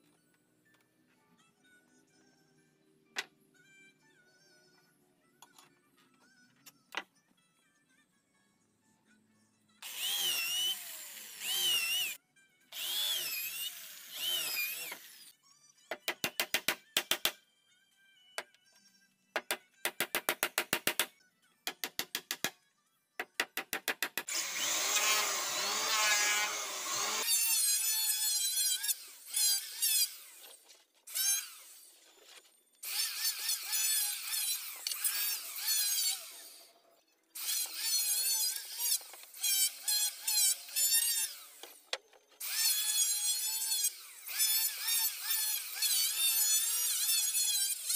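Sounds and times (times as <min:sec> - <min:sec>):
electric drill boring into wood: 0:09.8 - 0:15.3, 0:24.3 - 0:30.2.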